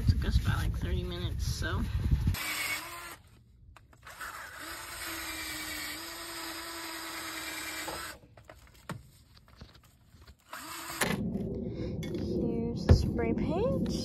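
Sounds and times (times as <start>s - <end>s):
drill wire brush scrubbing metal: 4.0s - 8.2s.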